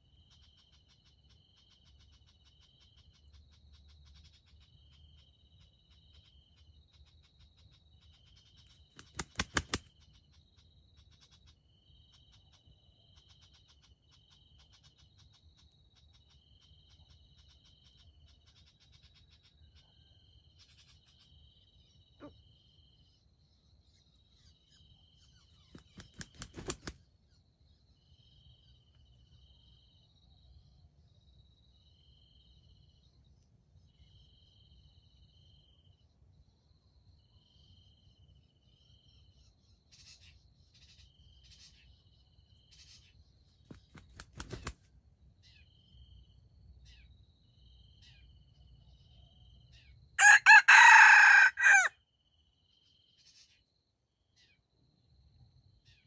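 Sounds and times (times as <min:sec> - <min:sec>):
faint insects chirping: 0:00.0 - 0:56.0
rooster crowing: 0:50.2 - 0:52.0.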